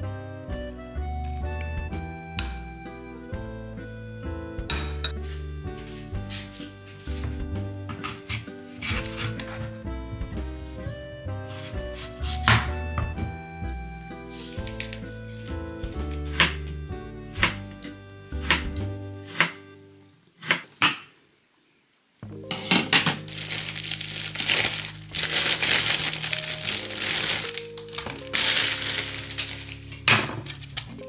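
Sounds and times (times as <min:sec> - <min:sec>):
background music: 0:00.0 - 0:20.2, 0:22.2 - 0:31.0
plastic bag crinkling: 0:23.1 - 0:30.9.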